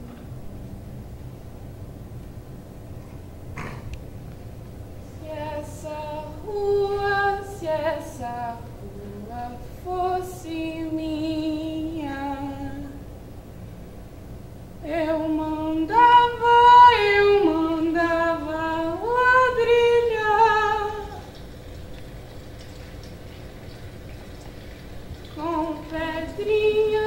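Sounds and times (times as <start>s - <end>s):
woman singing unaccompanied: 5.1s - 13.1s, 14.8s - 21.4s, 25.2s - 27.0s.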